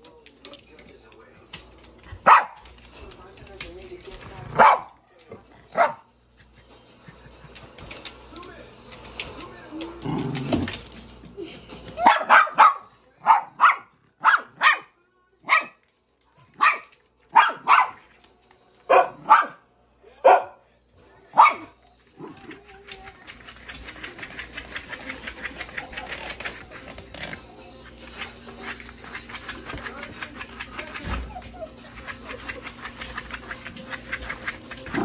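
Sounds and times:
small dog barking: 2.2 - 2.6, 4.6 - 5.0, 5.7 - 6.0, 12.0 - 15.8, 16.6 - 18.0, 18.9 - 19.6, 21.3 - 21.8.

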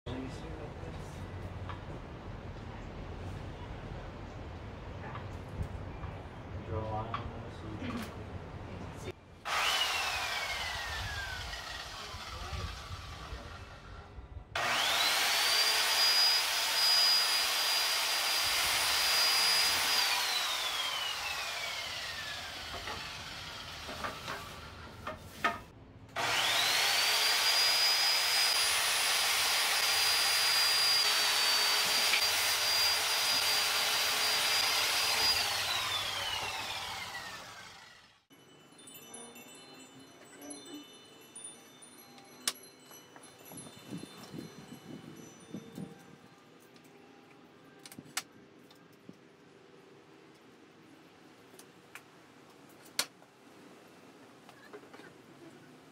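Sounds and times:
circular saw whining: 9.5 - 25.1, 26.2 - 38.3.

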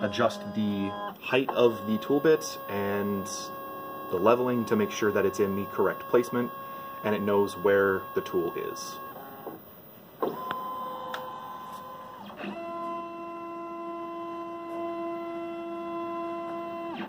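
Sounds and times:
stepper motors whining: 0.0 - 17.0.

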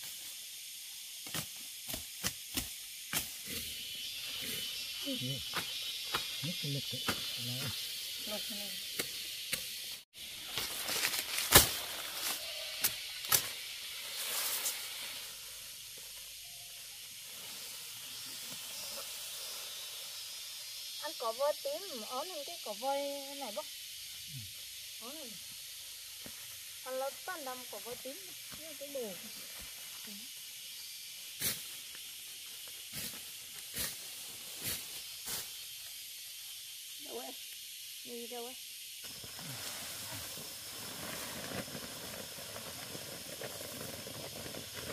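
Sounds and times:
leaves rustling: 0.0 - 23.6, 25.4 - 38.3, 39.0 - 44.9
steady high hiss: 0.0 - 44.9
machete chopping grass stalks: 1.2 - 3.5, 10.5 - 13.6.

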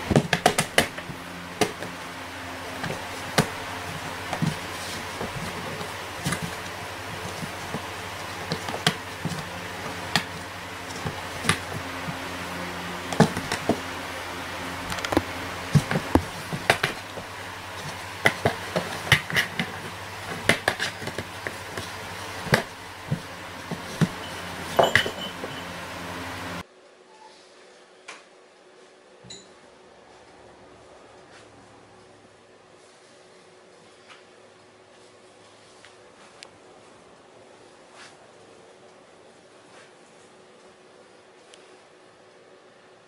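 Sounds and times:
cats tapping on cardboard: 0.0 - 2.0, 2.7 - 14.0, 14.9 - 25.5
steady low hum: 0.0 - 27.0.

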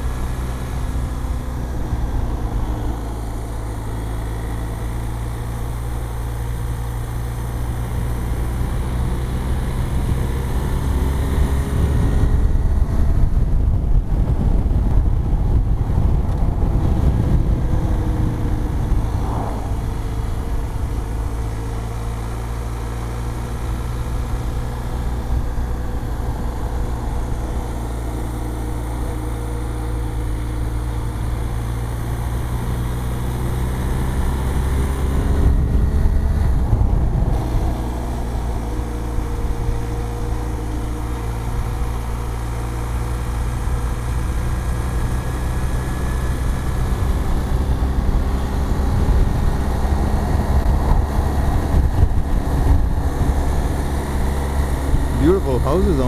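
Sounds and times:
motorcycle engine cruising: 0.0 - 56.0
wind rush: 11.6 - 21.1, 35.4 - 38.0.

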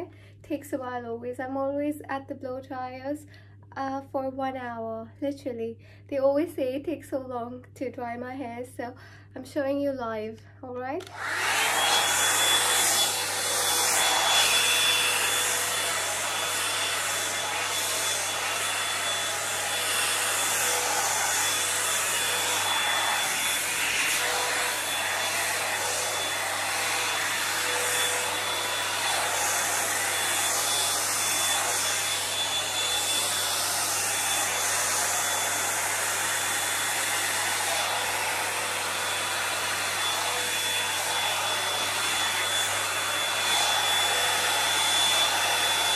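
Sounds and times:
hot-air brush blowing with whine: 11.0 - 45.9.

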